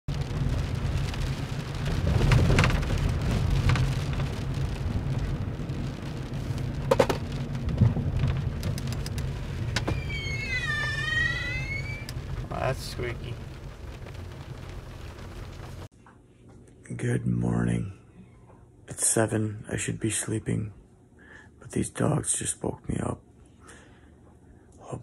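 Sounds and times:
rain falling on a car: 0.1s - 15.9s
steady low rumble: 0.1s - 15.9s
high whine: 8.2s - 15.9s.

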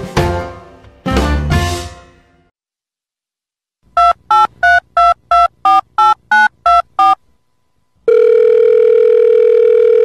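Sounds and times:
telephone keypad beeps: 4.0s - 7.2s
long steady telephone tone: 8.0s - 10.0s.

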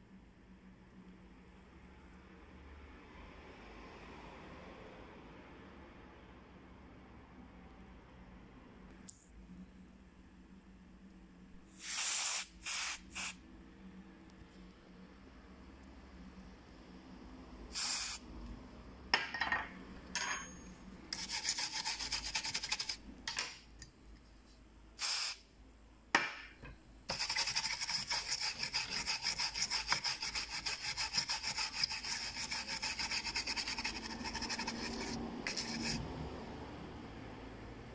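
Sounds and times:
brush scrubbing circuit board: 21.1s - 23.0s, 27.1s - 36.0s.

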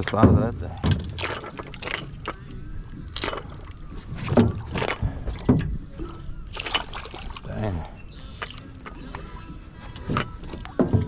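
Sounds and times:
fish splashing at surface: 0.8s - 2.4s, 6.5s - 7.5s.

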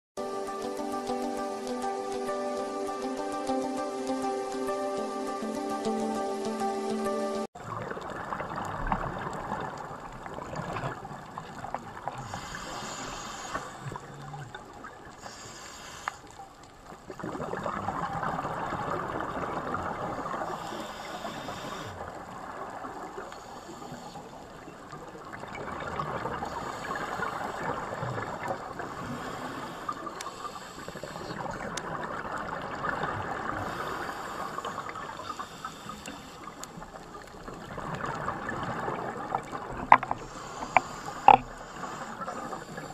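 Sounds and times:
underwater rushing bubbling water: 7.6s - 15.2s, 16.7s - 42.9s.

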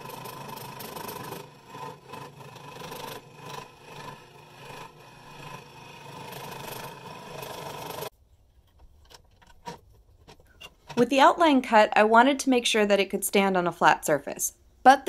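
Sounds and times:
scroll saw cutting wood: 0.0s - 8.1s.

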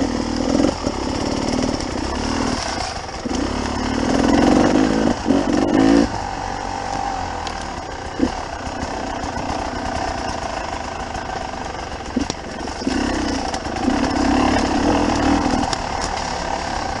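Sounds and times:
motorbike engine lugging: 0.0s - 17.0s
sharp clicks: 6.8s - 10.8s, 12.0s - 17.0s.

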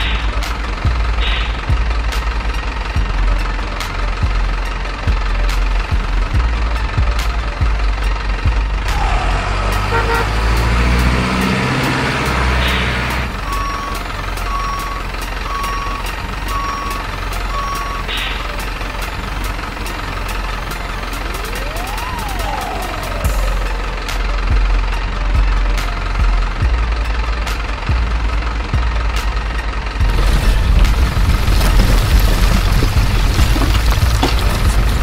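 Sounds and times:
truck engine rumble: 0.0s - 35.0s
reversing beeps: 13.5s - 18.1s.

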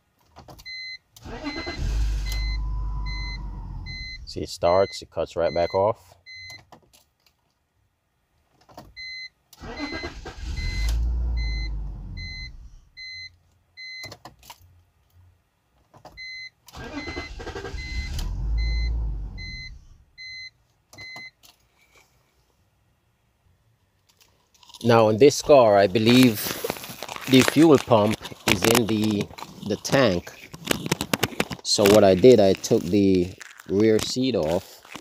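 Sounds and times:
car engine cranking and stalling: 1.2s - 4.4s, 9.6s - 12.7s, 16.7s - 20.0s.

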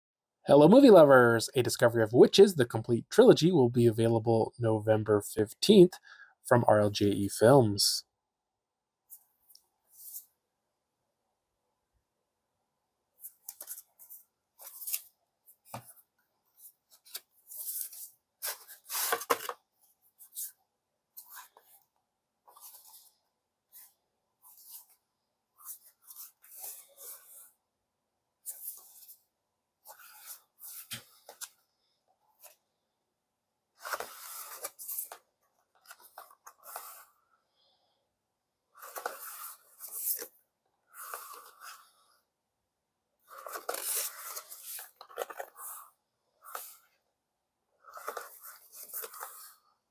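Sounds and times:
card pages turning: 13.3s - 16.0s, 17.0s - 19.6s, 33.8s - 37.0s, 38.8s - 40.3s, 43.3s - 45.8s, 46.4s - 46.8s, 47.9s - 49.6s
discs scraping out of cardboard sleeves: 17.5s - 19.6s, 43.3s - 45.8s.

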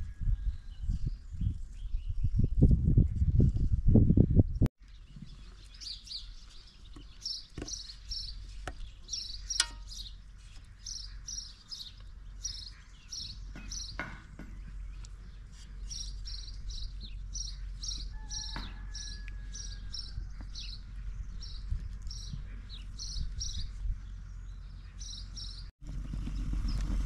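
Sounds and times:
high chirping: 5.6s - 10.2s.

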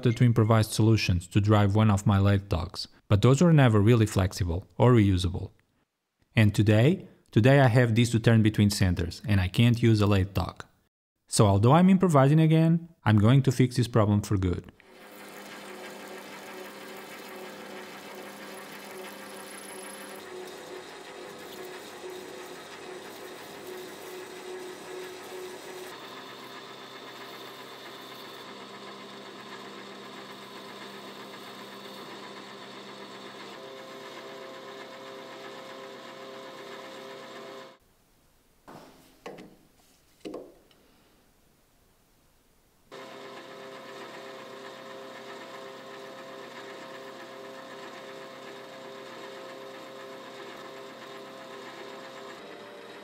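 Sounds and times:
metal lathe running: 14.9s - 37.8s, 42.9s - 53.0s.

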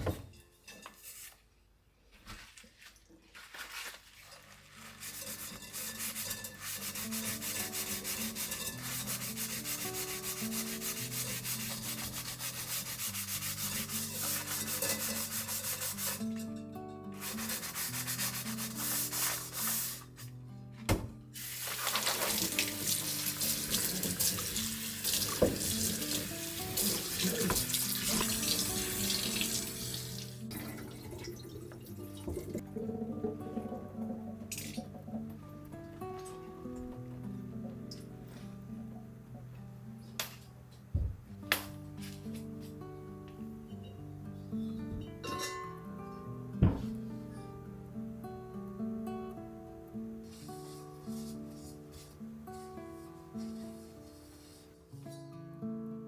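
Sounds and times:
scrubbing under running water: 2.3s - 16.2s, 17.2s - 20.2s, 21.4s - 33.8s
soft background music: 4.2s - 56.0s.

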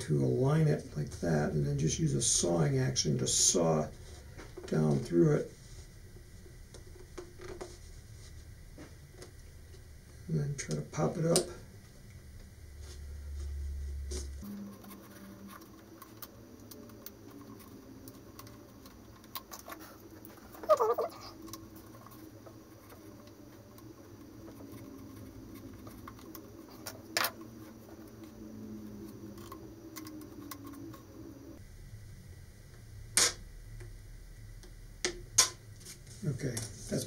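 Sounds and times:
squeaky scrape: 19.8s - 21.4s.

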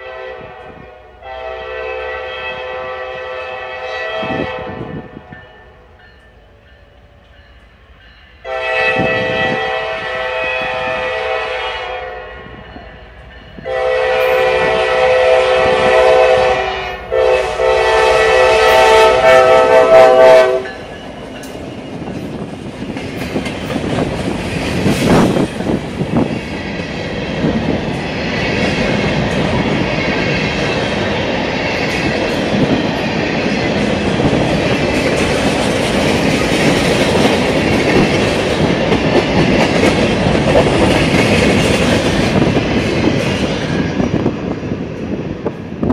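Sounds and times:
locomotive air horn blasts: 0.0s - 5.3s, 8.4s - 12.6s, 13.6s - 20.8s
train wheels clacking over rail joints: 20.1s - 44.1s.

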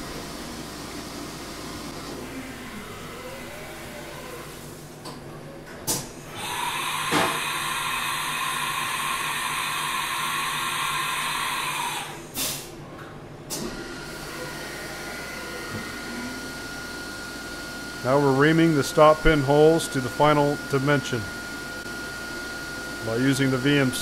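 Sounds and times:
loud machine hiss: 6.4s - 12.7s.

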